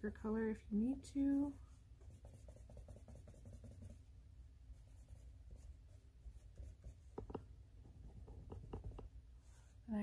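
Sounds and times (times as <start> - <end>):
pencil scratching on paper: 1.7 - 4.1, 4.8 - 7.4
small sharp knocks: 7.1 - 7.5, 8.2 - 9.1.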